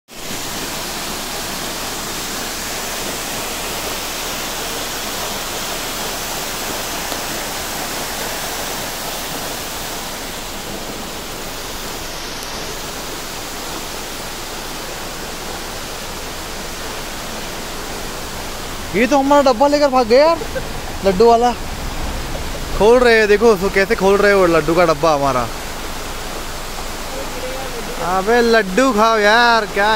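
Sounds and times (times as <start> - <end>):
running water rushing: 0.1 - 29.9.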